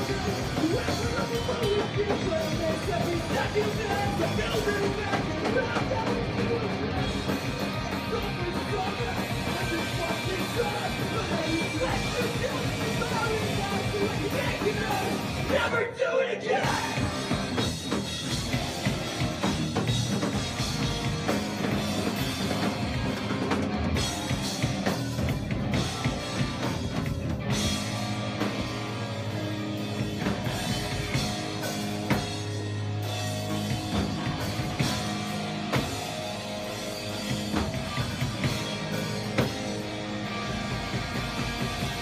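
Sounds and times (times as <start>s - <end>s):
drum kit: 0.0s - 15.8s, 16.5s - 42.0s
electric guitars: 0.0s - 42.0s
rock band playing: 0.0s - 42.0s.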